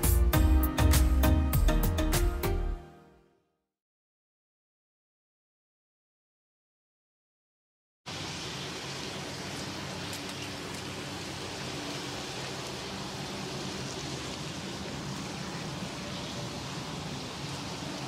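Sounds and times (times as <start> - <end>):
food sizzling on grill: 8.1 - 18.0.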